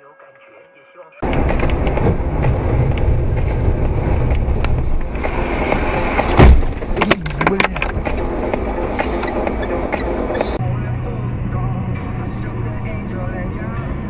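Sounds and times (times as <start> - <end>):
heavy thud: 1.2 - 8.0
car road and engine noise: 1.2 - 14.0.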